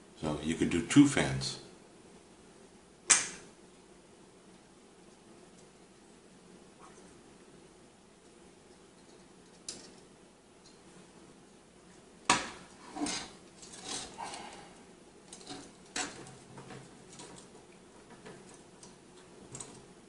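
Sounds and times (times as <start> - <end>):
metal heatsink rattling and scraping: 12.5 - 18.8.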